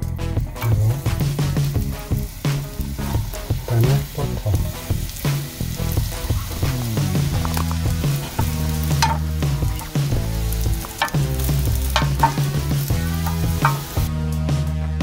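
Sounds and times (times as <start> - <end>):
mushrooms sizzling in a frying pan: 0.0 - 14.2
background music with bass line: 0.0 - 15.0
chopsticks clicking against pan: 7.4 - 10.0, 10.6 - 14.0.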